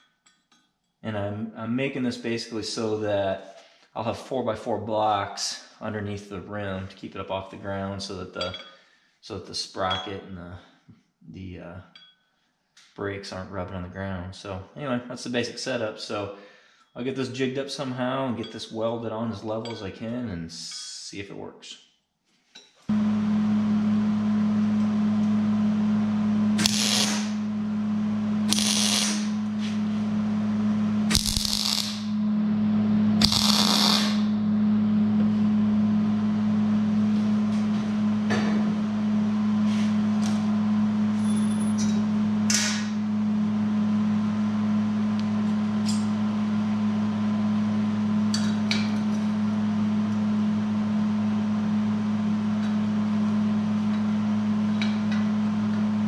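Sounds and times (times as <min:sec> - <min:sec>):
welder humming: 0:22.9 - 0:56.0
welding bursts: 0:26.6 - 0:27.4, 0:28.5 - 0:29.4, 0:31.1 - 0:32.2, 0:33.2 - 0:34.4.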